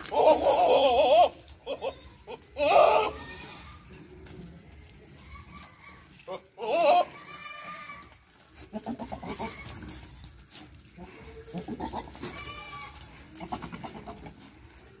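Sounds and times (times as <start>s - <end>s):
goats bleating: 0.0s - 15.0s.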